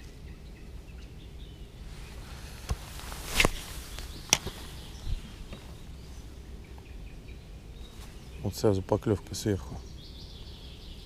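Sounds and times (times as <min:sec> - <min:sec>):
faint low rumble: 0:00.0 - 0:11.0.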